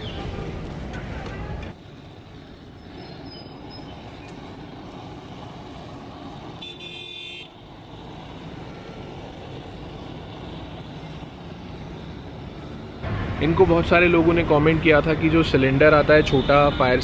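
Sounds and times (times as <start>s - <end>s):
blowtorch flame burning: 0.0s - 17.0s
vehicle horn toot: 6.6s - 7.6s, 16.3s - 17.0s.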